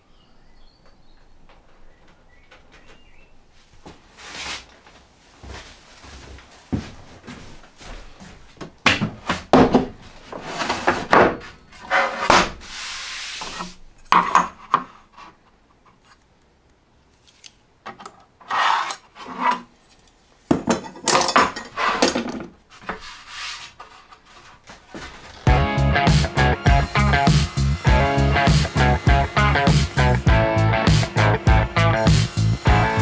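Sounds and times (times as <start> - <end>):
wood knocking and clattering: 8.6 - 11.5, 14.1 - 14.9, 20.5 - 23.0
wood rubbing or scraping: 9.8 - 16.2, 18.4 - 20.2, 20.8 - 25.5.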